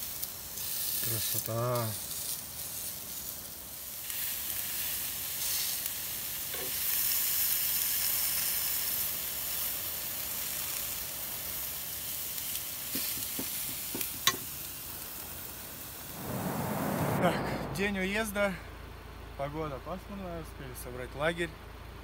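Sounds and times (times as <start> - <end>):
food sizzling in hot oil: 0.0 - 16.0.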